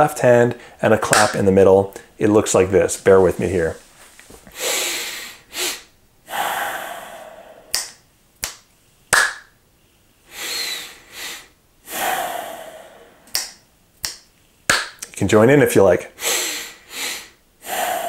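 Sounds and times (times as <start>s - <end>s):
hand clap: 1.1s - 1.4s, 7.7s - 9.6s, 13.3s - 15.1s
finger snap: 1.1s - 2.1s, 7.7s - 9.6s, 13.2s - 15.2s
man breathing in with sniff: 4.5s - 7.8s, 10.3s - 13.4s, 16.2s - 18.0s
long slow exhale: 4.6s - 7.8s, 10.3s - 13.4s, 16.2s - 18.0s.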